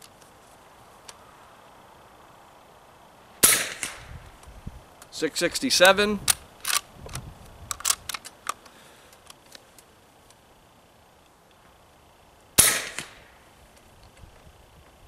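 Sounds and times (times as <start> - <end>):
suppressed air rifle shot: 3.4 - 4.2, 12.6 - 13.4
rifle bolt clicks: 5.8 - 6.8, 7.7 - 8.6.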